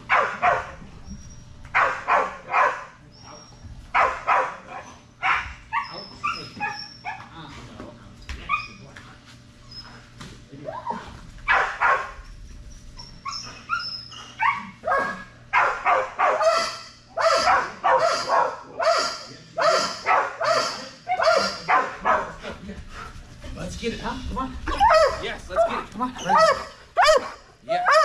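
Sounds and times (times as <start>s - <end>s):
dog barking: 0.1s - 0.8s, 1.7s - 3.0s, 4.0s - 7.2s, 11.5s - 12.2s, 14.4s - 22.4s, 24.7s - 28.0s
dog whining and yipping: 5.7s - 7.2s, 12.9s - 15.2s, 24.7s - 25.2s, 26.2s - 28.0s.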